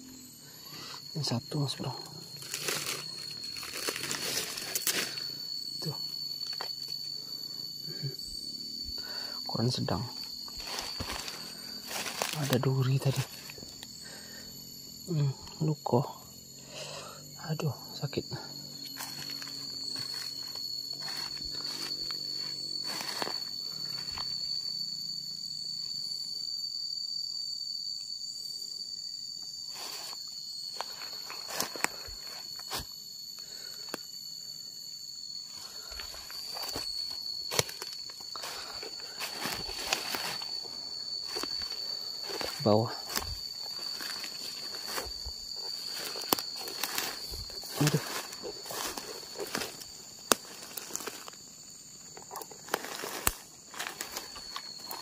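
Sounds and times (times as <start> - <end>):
insects trilling: 0.0 - 55.0
footsteps on dry leaves: 2.4 - 5.2, 10.6 - 12.6, 19.0 - 23.6, 36.0 - 51.2.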